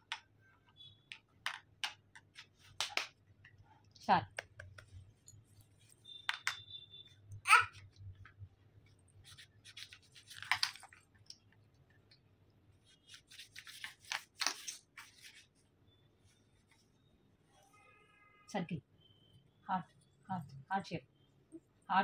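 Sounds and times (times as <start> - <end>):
wooden puzzle pieces tapping: 1.0 - 3.5, 4.3 - 5.0, 6.2 - 6.6.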